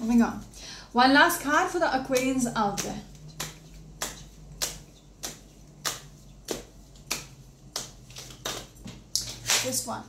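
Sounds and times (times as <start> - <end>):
cards being shuffled by hand: 2.2 - 9.9.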